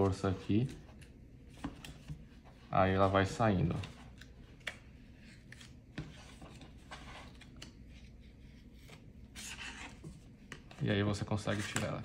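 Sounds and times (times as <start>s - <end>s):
paper card rubbing and scraping: 5.1s - 10.7s, 11.4s - 12.0s.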